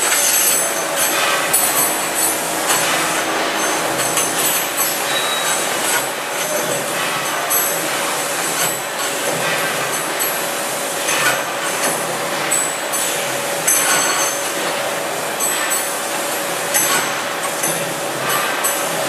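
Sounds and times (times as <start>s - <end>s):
electric motor humming: 0.0s - 7.1s
metal clinks and knocks: 0.0s - 7.9s
carriage rolling on steel rails: 0.0s - 19.0s.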